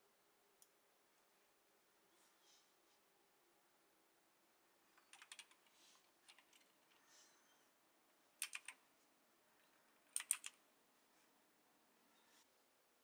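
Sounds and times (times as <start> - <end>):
keyboard keystrokes clicking: 5.1 - 5.6, 8.4 - 8.8, 10.1 - 10.6.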